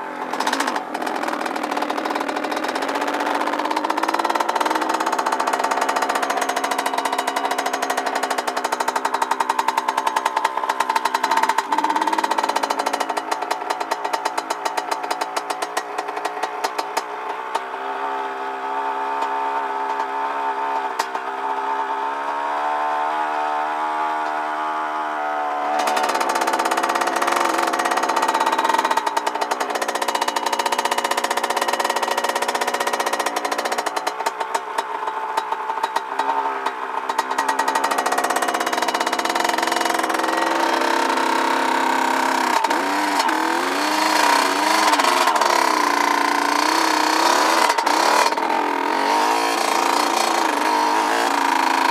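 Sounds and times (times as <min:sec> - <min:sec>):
dirt bike engine running: 0:00.0 - 0:22.5, 0:25.6 - 0:51.9.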